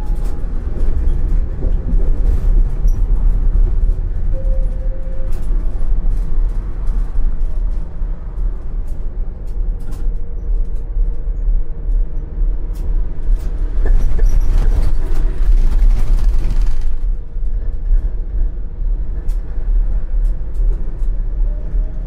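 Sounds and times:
tram rumbling on track: 0:00.0 - 0:22.0.

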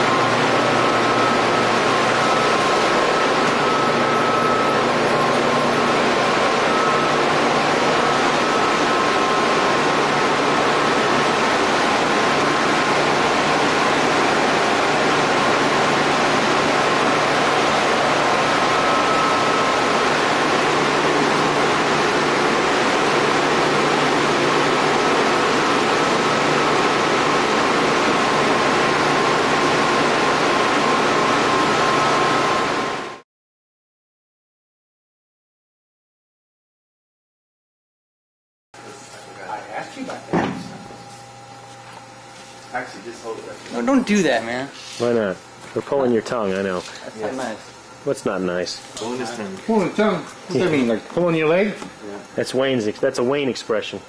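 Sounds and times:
high machinery whine: 0:00.0 - 0:33.2, 0:38.8 - 0:54.0
low machinery hum: 0:38.8 - 0:54.0.

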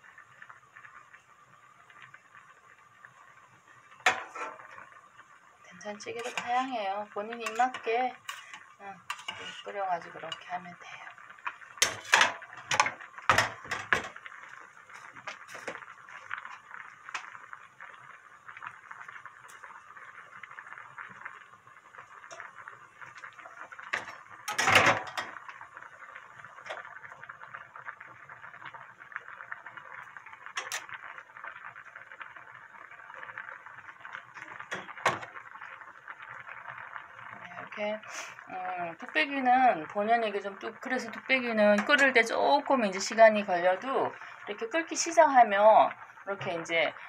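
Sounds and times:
stew boiling with bubbling hiss: 0:00.0 - 0:47.0
metal ladle clinking on pot: 0:07.4 - 0:09.7.

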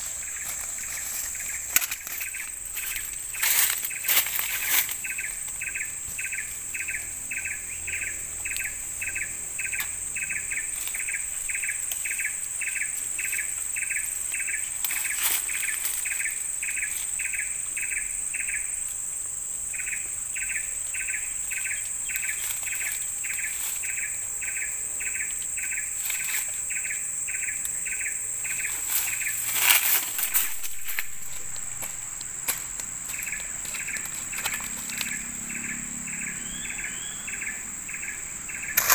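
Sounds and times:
high-pitched insect drone: 0:00.0 - 0:38.9
sharp cracks: 0:38.7 - 0:38.9.

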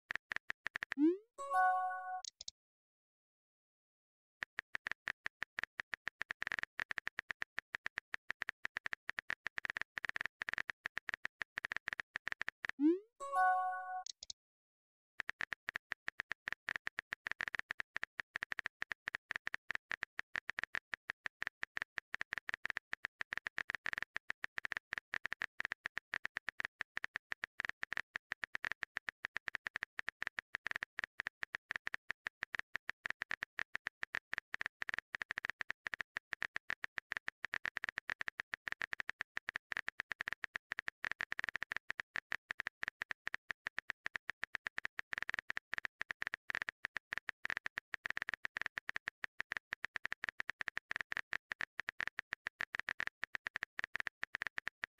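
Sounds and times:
phone keyboard typing clicks: 0:00.1 - 0:02.5.

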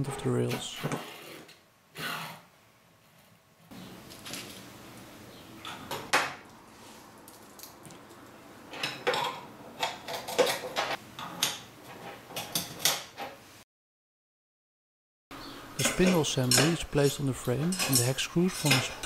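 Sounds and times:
metal brackets clinking: 0:15.8 - 0:19.0.

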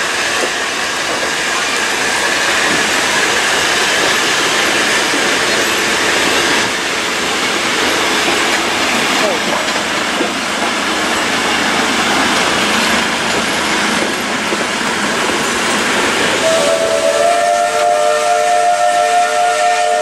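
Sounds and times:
train carriages rolling past: 0:00.0 - 0:20.0
steam locomotive whistle chord: 0:16.4 - 0:20.0.

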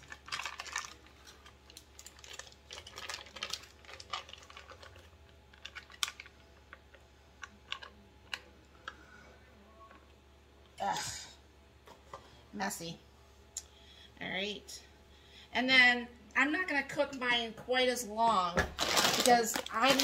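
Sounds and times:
foil wrapper crinkling: 0:00.0 - 0:06.9, 0:18.8 - 0:20.0.

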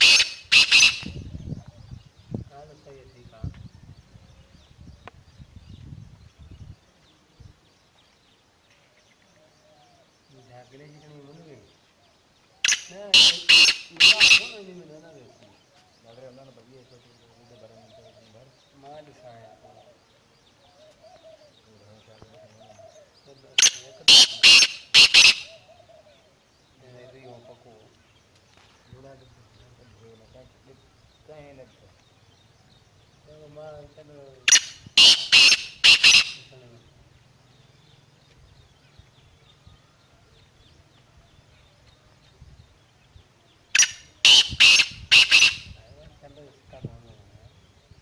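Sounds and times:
bird calling harsh grating notes: 0:00.0 - 0:01.2, 0:12.6 - 0:14.8, 0:23.6 - 0:25.7, 0:34.5 - 0:36.5, 0:43.8 - 0:45.8
francolin calling: 0:00.0 - 0:03.1, 0:08.1 - 0:48.0.

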